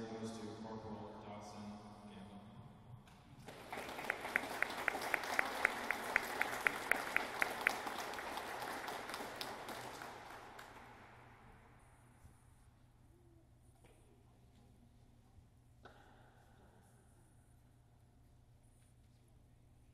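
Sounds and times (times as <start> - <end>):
sharp close claps: 3.1 - 11.6
audience applauding: 3.4 - 11.2.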